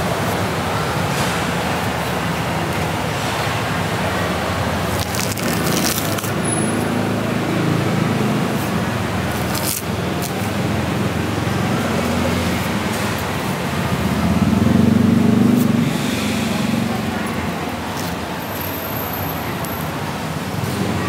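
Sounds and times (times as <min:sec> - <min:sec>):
traffic noise: 0:00.0 - 0:21.0
vehicle engine running: 0:02.1 - 0:21.0.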